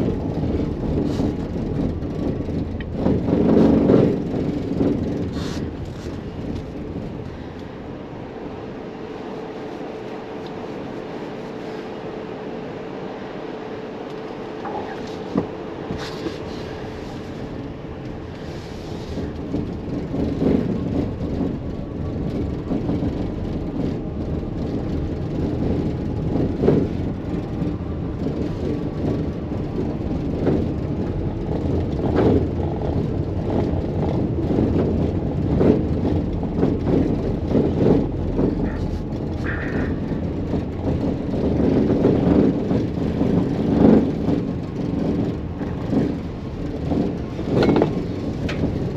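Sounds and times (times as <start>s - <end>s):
tyre rumble on cobblestones: 18.9s - 48.9s
knocks and rattles: 19.2s - 48.9s.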